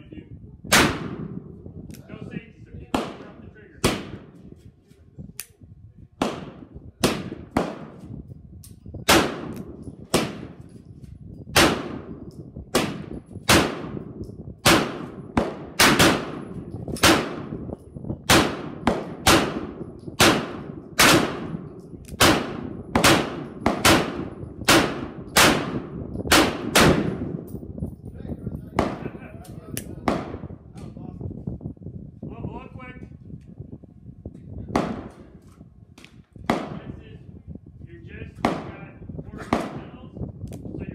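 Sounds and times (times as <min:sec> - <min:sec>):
gunshots with echo: 0:12.7 - 0:17.6, 0:18.3 - 0:21.6, 0:22.2 - 0:27.4.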